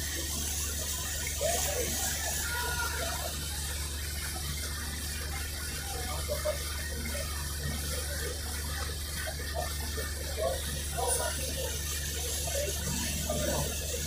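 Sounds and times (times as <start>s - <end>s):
low engine drone: 0.0s - 14.0s
water rushing along hull: 0.0s - 14.0s.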